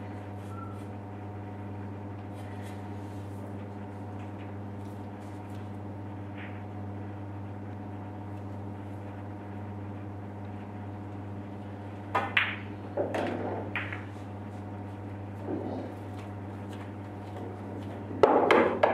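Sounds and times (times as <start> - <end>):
steady low hum: 0.0 - 18.9
pool balls clicking: 12.0 - 14.3, 18.2 - 18.9.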